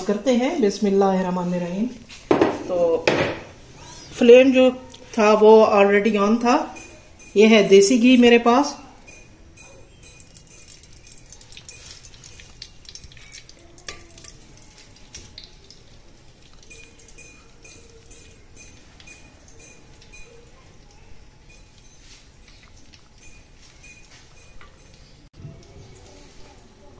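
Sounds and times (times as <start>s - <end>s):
ghee dripping into pot: 9.0s - 26.0s
faint crackles and ticks: 10.1s - 26.6s.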